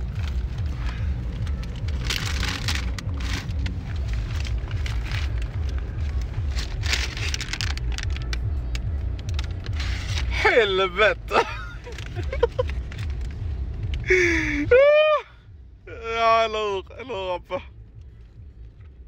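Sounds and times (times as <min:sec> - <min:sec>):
paper bags rustling: 0:00.0 - 0:08.4
car low rumble: 0:00.0 - 0:19.0.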